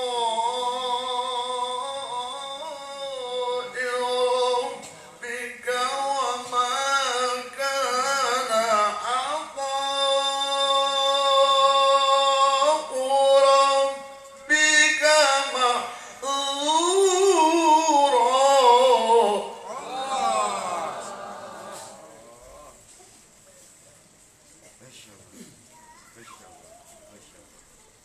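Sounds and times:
man reciting melodically: 0.0s - 21.2s.

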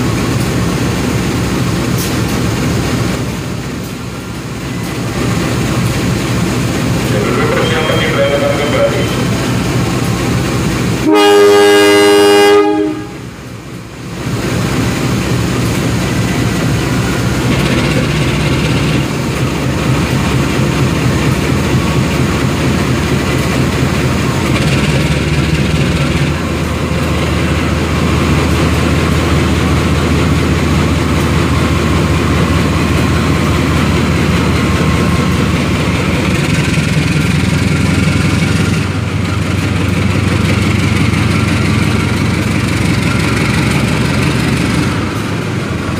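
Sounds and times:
diesel engine running: 0.0s - 45.9s
locomotive horn chord: 11.0s - 13.4s.

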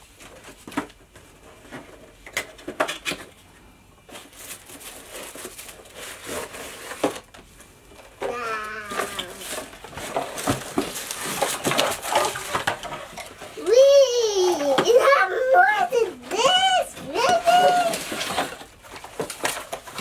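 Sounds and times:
cardboard and paper rustling: 0.0s - 3.4s, 4.0s - 20.0s
child exclaiming: 8.2s - 9.6s, 13.6s - 18.0s.

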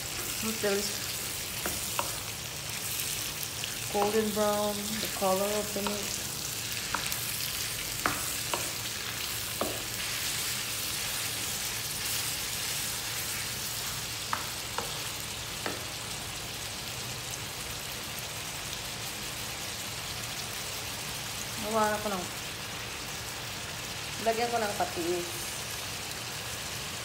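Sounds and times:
meat sizzling in a frying pan: 0.0s - 27.0s
wooden spatula knocking pan: 8.0s - 8.8s, 9.5s - 10.0s, 14.3s - 15.0s.

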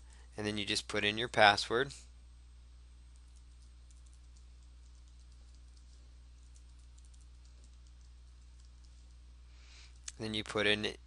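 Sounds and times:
low steady hum: 0.0s - 11.0s
typing on computer keyboard: 3.2s - 9.2s.

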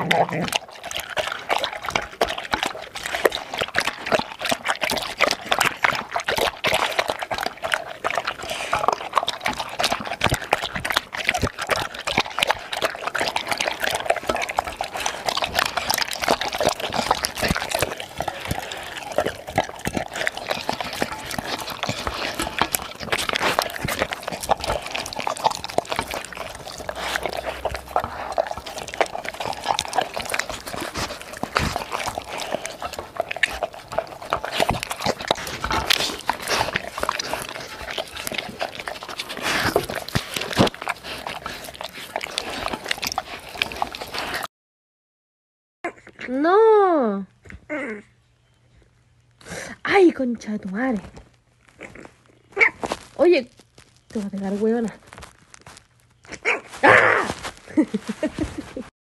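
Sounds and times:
dog lapping from bowl: 0.0s - 44.5s.

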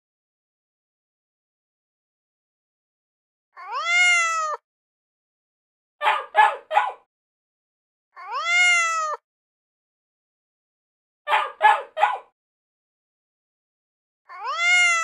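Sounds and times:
cat meowing: 3.6s - 4.6s, 8.2s - 9.2s, 14.3s - 15.0s.

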